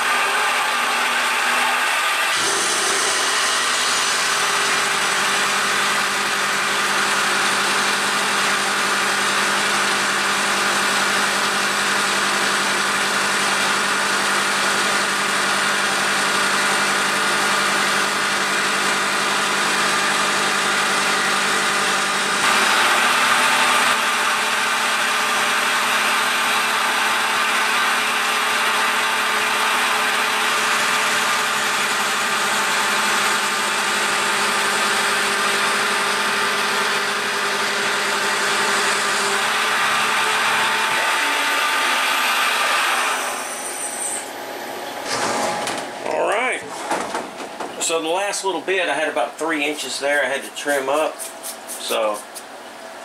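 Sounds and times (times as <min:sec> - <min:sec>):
coolant spraying: 0:00.0 - 0:19.5, 0:49.4 - 0:52.7
end mill cutting metal: 0:00.0 - 0:46.0, 0:46.7 - 0:52.8
milling machine spindle running: 0:00.0 - 0:53.0.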